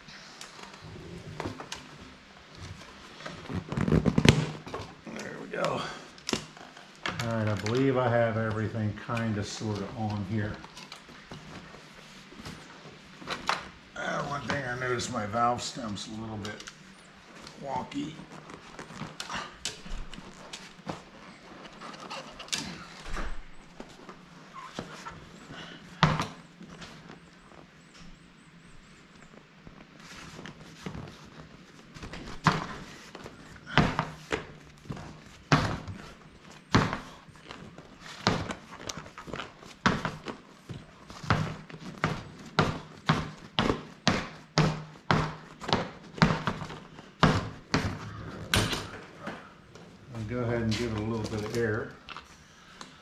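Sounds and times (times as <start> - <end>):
rubber tire rustling: 0.5 - 52.4
bike wheel thudding on workbench: 36.7 - 37.2, 41.2 - 49.0.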